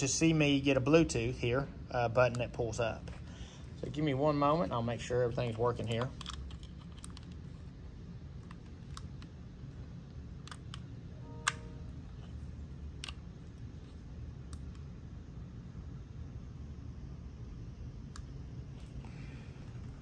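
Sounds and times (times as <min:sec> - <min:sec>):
remote buttons clicking: 0:10.4 - 0:12.4
short electronic beep: 0:11.2 - 0:12.0.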